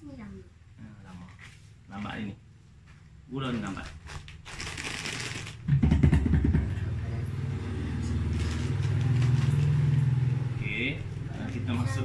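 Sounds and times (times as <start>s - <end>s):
plastic bag rustling: 3.5s - 5.7s, 8.2s - 10.2s
vehicle engine humming: 6.4s - 12.0s.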